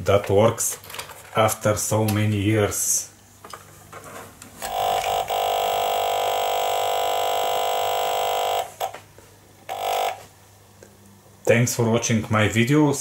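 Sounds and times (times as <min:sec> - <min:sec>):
electronic buzzing tone: 0:04.6 - 0:09.0, 0:09.7 - 0:10.3.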